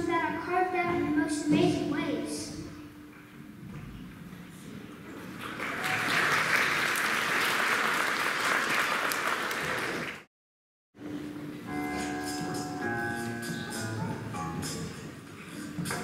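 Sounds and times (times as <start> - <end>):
audience applause: 5.2 - 10.3.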